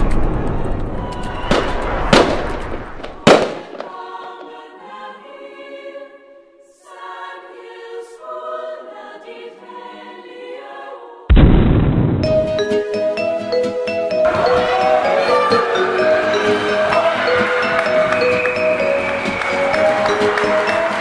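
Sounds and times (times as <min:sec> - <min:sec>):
firework bangs with crackle: 0:01.4 - 0:04.0, 0:11.3 - 0:12.6.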